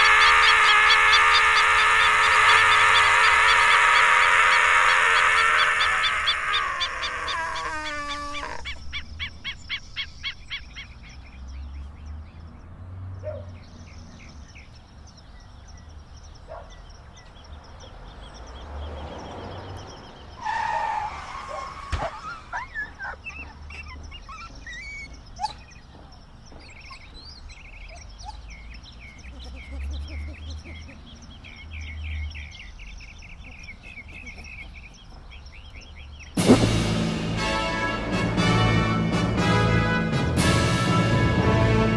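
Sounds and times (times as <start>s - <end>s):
birds chirping and trilling: 0.0s - 41.9s
short rushing burst: 36.4s - 37.9s.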